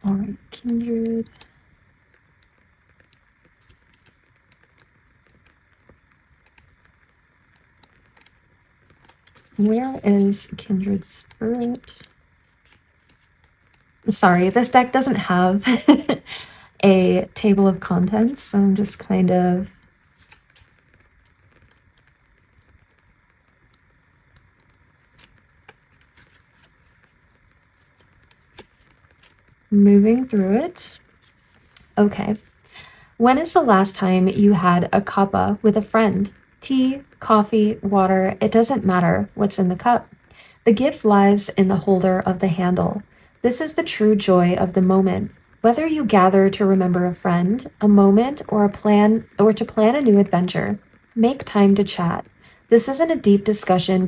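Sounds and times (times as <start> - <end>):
pages being leafed through: 7.8 - 13.8, 20.0 - 22.9, 24.5 - 29.6, 30.2 - 32.6.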